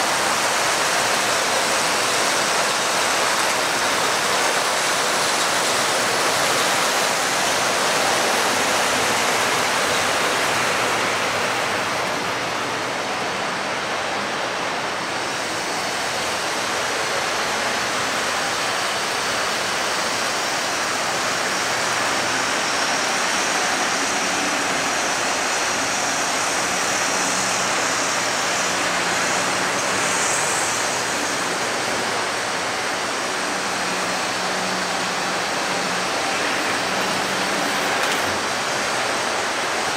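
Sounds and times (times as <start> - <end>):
model trains running on track: 0.0 - 39.9.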